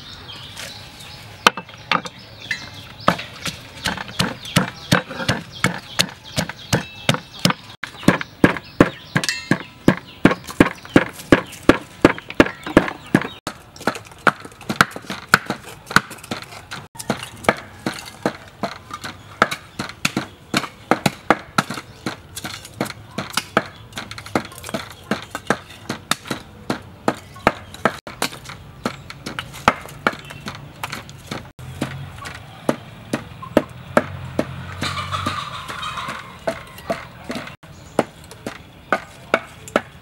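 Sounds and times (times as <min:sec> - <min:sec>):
wooden pestle pounding in mortar: 0:03.0 - 0:34.6
blade chopping charcoal: 0:03.0 - 0:34.7, 0:36.5 - 0:40.0.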